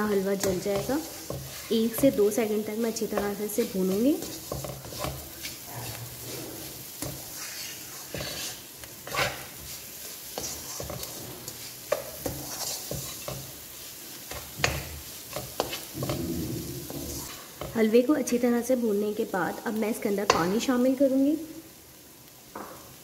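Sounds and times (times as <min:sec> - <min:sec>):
wooden spatula scraping a pan: 0:00.0 - 0:17.9
ghee sizzling: 0:00.0 - 0:23.0.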